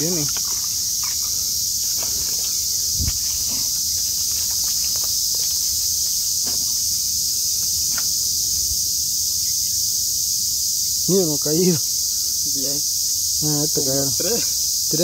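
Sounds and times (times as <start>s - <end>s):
footsteps on mud: 0.0s - 8.1s
insect chorus: 0.0s - 15.0s
dull thump: 1.9s - 3.8s, 6.4s - 6.9s.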